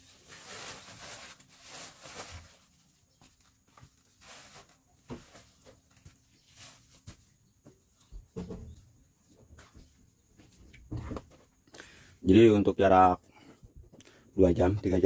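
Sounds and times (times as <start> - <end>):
plastic sacks rustling: 0.0 - 7.3.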